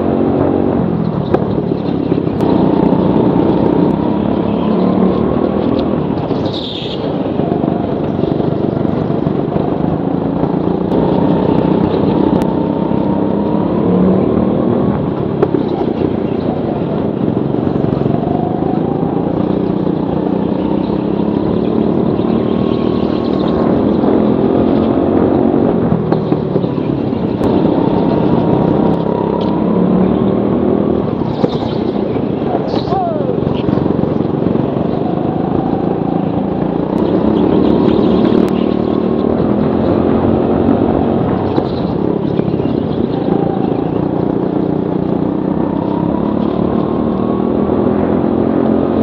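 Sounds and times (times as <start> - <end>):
go-kart engine: 0.0 - 49.0.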